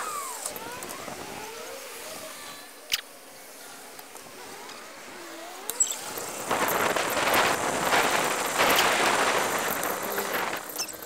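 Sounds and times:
wind rushing over microphone: 0:00.0 - 0:02.6, 0:06.0 - 0:11.0
road and traffic noise: 0:00.0 - 0:11.0.

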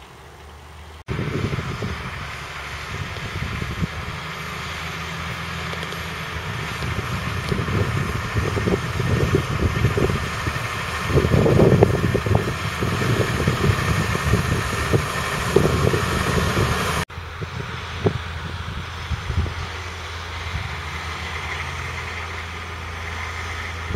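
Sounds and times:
tractor diesel engine under load: 0:00.0 - 0:23.9.

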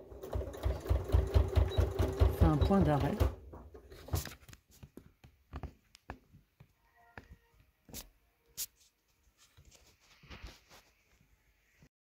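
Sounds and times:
faint brief tone: 0:06.8 - 0:07.6.

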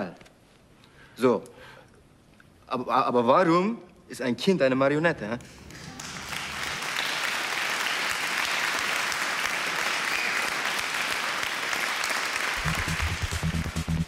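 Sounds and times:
audience applauding: 0:05.5 - 0:14.0
music with deep bass beat: 0:12.6 - 0:14.0.

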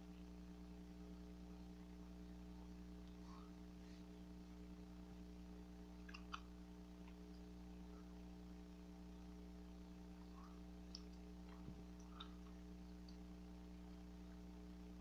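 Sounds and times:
low electrical hum: 0:00.0 - 0:15.0
wet mouth clicks chewing gum: 0:06.0 - 0:07.2.

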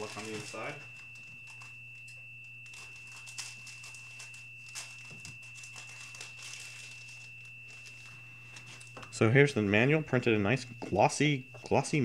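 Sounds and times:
paper and packaging crinkling: 0:00.0 - 0:01.8, 0:02.6 - 0:09.1
steady low hum: 0:00.0 - 0:12.0.

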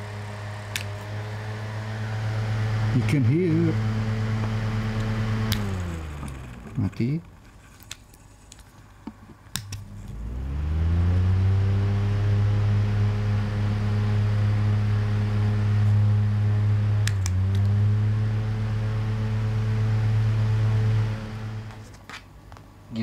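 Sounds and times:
desk fan humming: 0:00.0 - 0:23.0
fan switch clicks: 0:00.7 - 0:01.0, 0:09.5 - 0:09.8.

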